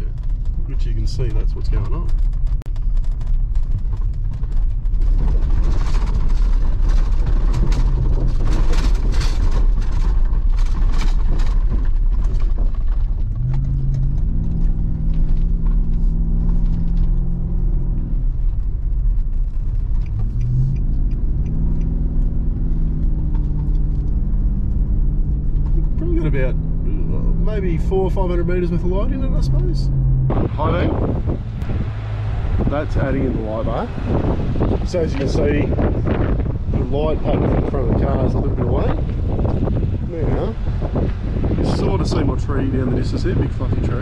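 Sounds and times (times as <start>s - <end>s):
car engine rumble: 0.0s - 44.0s
tyre and road noise: 0.0s - 44.0s.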